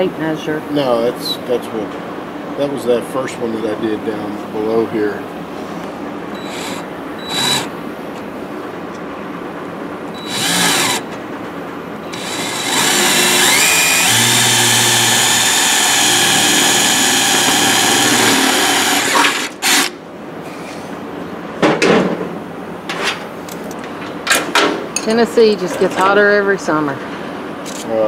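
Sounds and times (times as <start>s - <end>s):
cordless drill driving a bolt: 6.4s - 7.7s, 10.2s - 11.0s, 12.1s - 19.9s.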